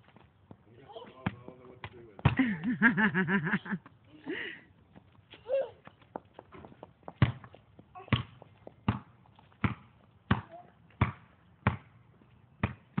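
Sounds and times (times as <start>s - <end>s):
ball bouncing on pavement: 0.0s - 2.8s, 4.9s - 13.0s.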